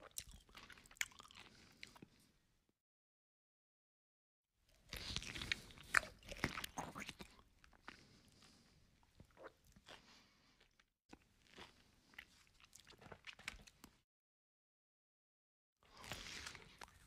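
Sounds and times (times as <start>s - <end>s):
chewing and crunching food: 0.0s - 2.4s, 4.7s - 14.0s, 15.8s - 17.0s.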